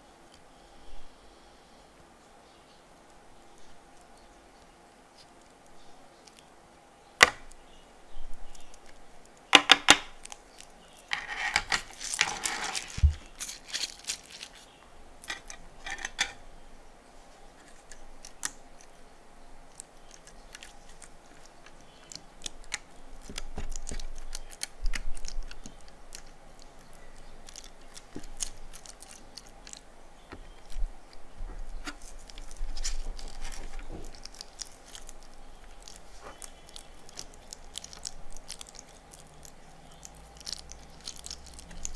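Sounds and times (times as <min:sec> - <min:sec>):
sticky crackling of slime: 0:08.4 - 0:15.5, 0:17.6 - 0:19.0, 0:19.6 - 0:41.9
beads clicking and rattling: 0:12.0 - 0:14.6.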